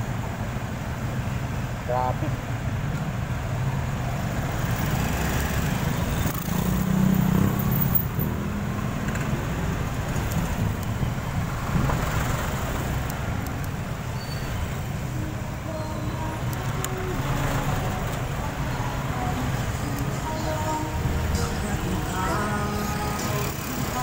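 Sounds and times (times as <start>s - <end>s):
road traffic noise: 0.0s - 24.0s
wind rumbling on microphone: 9.7s - 16.7s.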